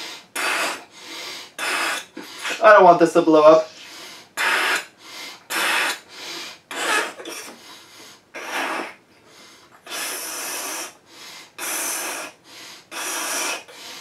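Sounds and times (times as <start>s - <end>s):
blowing into balloon: 0.0s - 0.9s, 1.6s - 2.6s, 4.4s - 4.9s, 5.5s - 6.0s, 6.7s - 7.6s, 8.3s - 9.0s, 9.8s - 11.0s, 11.6s - 13.7s
person breathing hard: 0.0s - 2.6s, 3.7s - 14.0s.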